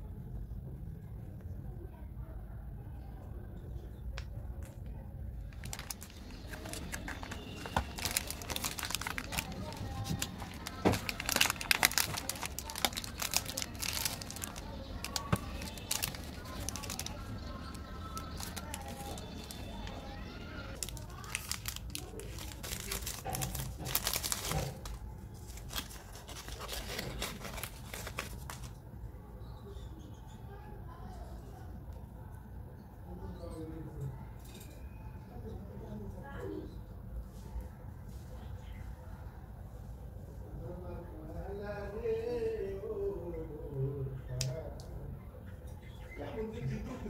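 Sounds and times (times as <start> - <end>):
candy wrappers crinkling: 5.4 - 28.8.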